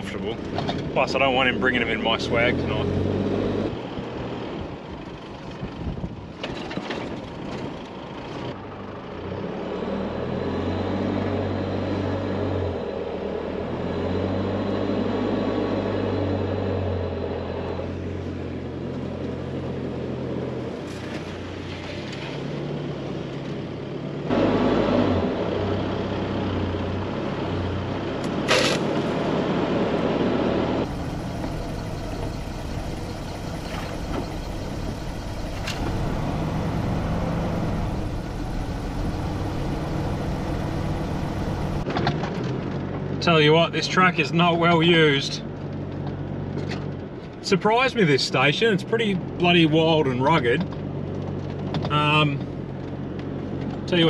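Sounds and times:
vehicle engine running at low speed: 0:00.0 - 0:54.0
rushes of noise: 0:28.5 - 0:41.9.

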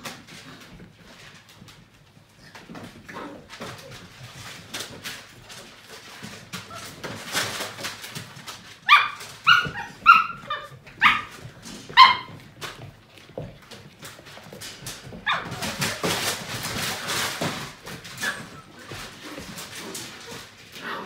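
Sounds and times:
puppies scuffling and clicking: 0:00.0 - 0:21.0
puppy barking: 0:08.8 - 0:11.4, 0:12.0 - 0:12.4, 0:15.2 - 0:15.6.

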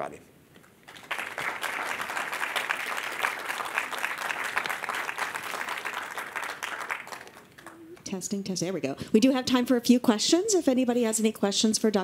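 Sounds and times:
people applauding: 0:00.7 - 0:08.0.

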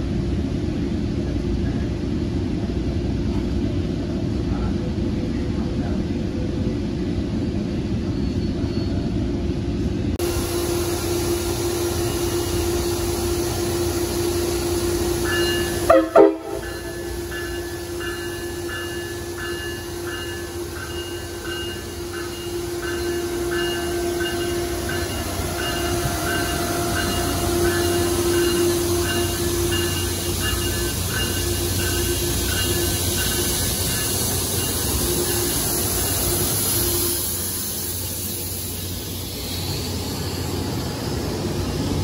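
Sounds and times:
locomotive engine running: 0:10.2 - 0:42.0
train horn blip: 0:13.7 - 0:17.3
bell ringing: 0:15.3 - 0:36.6.

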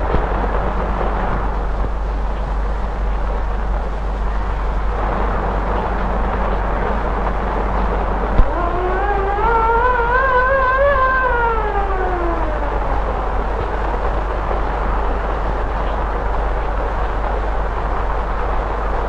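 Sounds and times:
heavy rain: 0:00.0 - 0:19.0
strong wind: 0:00.0 - 0:19.0
wavering rising tone: 0:05.0 - 0:14.5.

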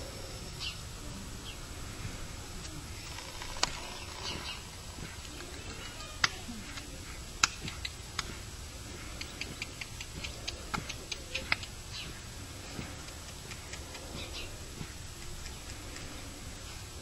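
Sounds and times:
horse hoofbeats on dirt: 0:07.4 - 0:16.0.

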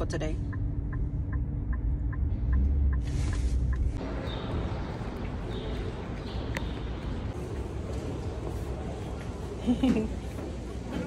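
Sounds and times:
turn signal ticking: 0:00.0 - 0:04.0
road rumble: 0:00.0 - 0:11.0.

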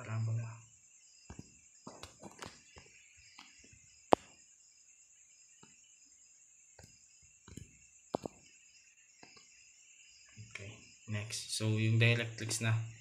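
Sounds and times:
insect chirring: 0:00.0 - 0:13.0
sharp knocks: 0:06.8 - 0:08.5.

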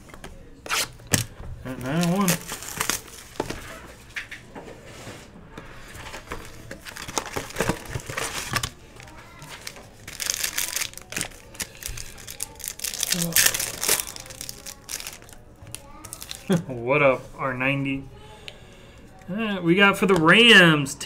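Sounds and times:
foil wrappers crinkling: 0:00.7 - 0:03.9, 0:05.9 - 0:16.7.

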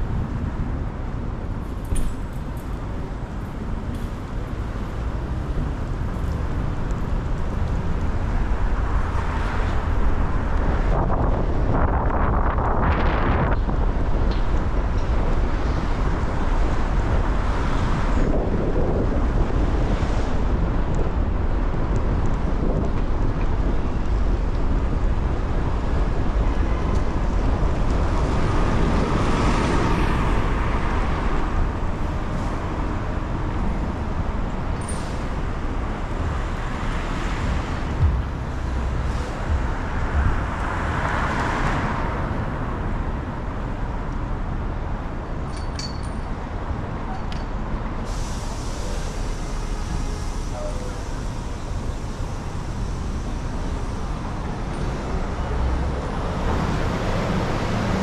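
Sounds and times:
low traffic rumble: 0:00.0 - 0:58.0
vehicles passing: 0:00.0 - 0:58.0
tyres hissing on wet road: 0:34.9 - 0:42.4, 0:47.9 - 0:58.0.

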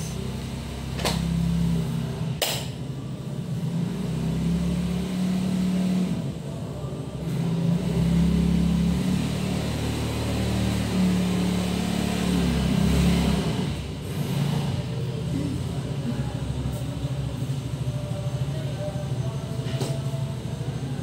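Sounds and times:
passing traffic engines: 0:00.0 - 0:02.4.

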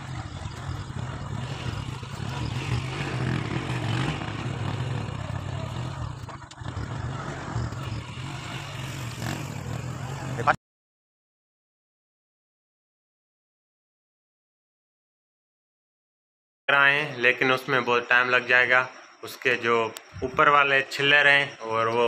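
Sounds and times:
motorcycle engine running: 0:00.0 - 0:10.6.

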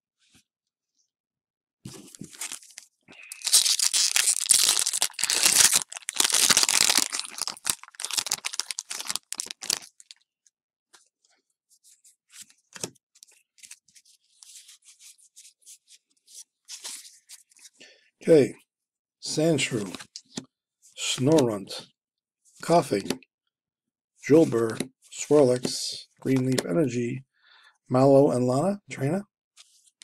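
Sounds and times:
foil wrapper tearing and crinkling: 0:02.3 - 0:10.2
cards clicking and rustling: 0:03.4 - 0:09.9, 0:26.3 - 0:26.6.

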